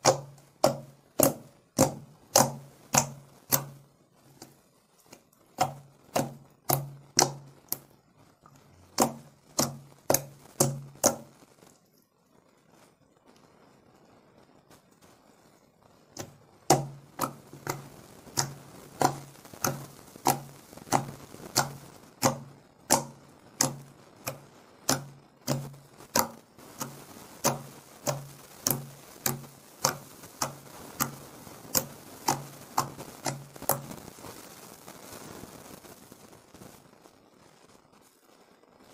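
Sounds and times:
fingers poking sticky slime: 0.0 - 11.4, 16.2 - 34.0.

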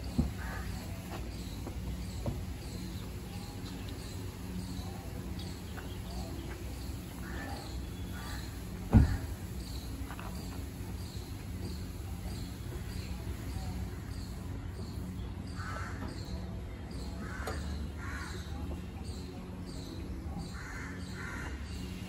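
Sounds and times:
sharp thump: 8.9 - 9.2.

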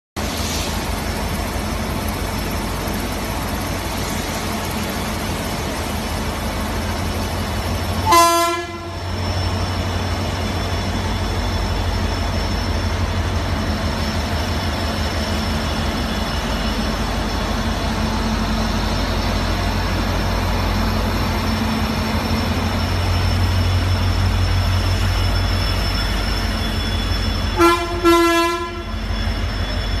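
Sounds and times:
diesel locomotive engine rumble: 0.2 - 30.0
locomotive horn blasts: 8.0 - 9.0, 27.6 - 29.0.

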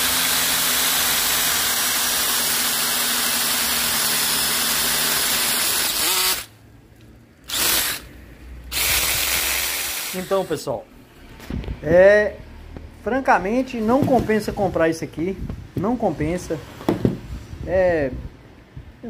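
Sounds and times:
drill-driven chainsaw cutting branch: 0.0 - 6.5, 7.5 - 8.1, 8.7 - 10.7.

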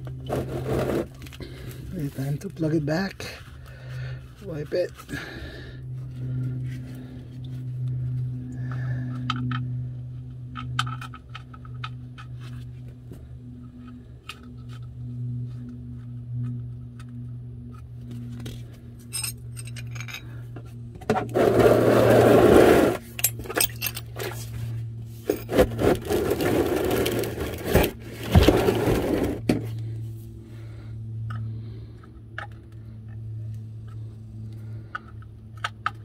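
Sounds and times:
rustling and scraping: 0.0 - 5.3, 10.5 - 30.3
steady low hum: 0.0 - 36.0
sharp metal clinks: 19.1 - 20.2.

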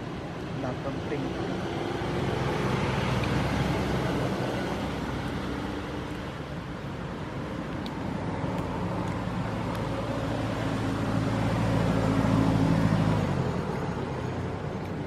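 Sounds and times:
vehicle engine passing: 8.0 - 14.9.

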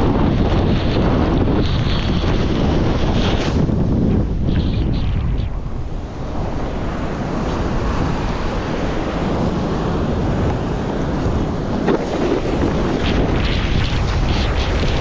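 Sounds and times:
wind buffeting microphone: 0.0 - 15.0
surf breaking: 5.6 - 15.0.

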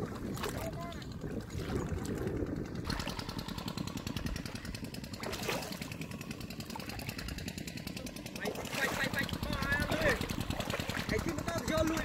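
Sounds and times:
wind rumble on microphone: 0.0 - 5.7
small engine running: 0.0 - 12.0.

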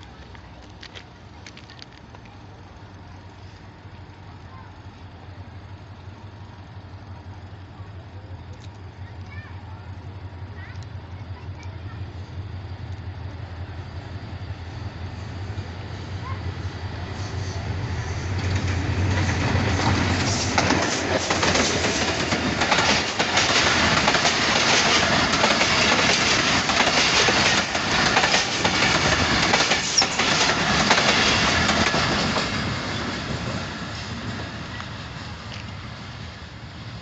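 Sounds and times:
locomotive hum: 0.0 - 37.0
train wheels clattering: 15.3 - 36.6.

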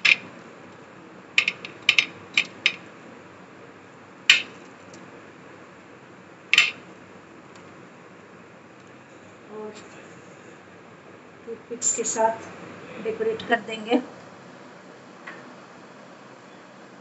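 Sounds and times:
sandwich clicking on a platter: 1.4 - 2.8, 4.3 - 4.6, 6.5 - 6.8.

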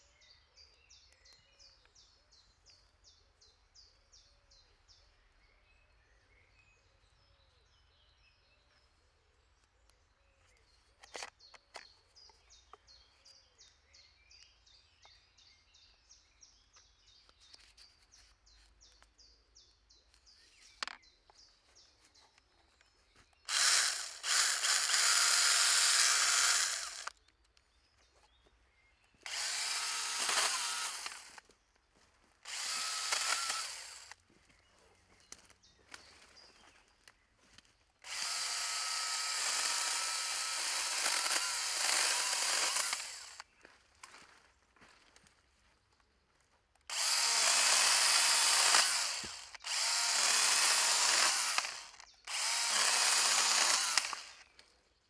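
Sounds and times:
cordless saw motor running: 23.5 - 27.2, 29.2 - 31.4, 32.4 - 34.2, 38.0 - 43.5, 46.9 - 54.6.

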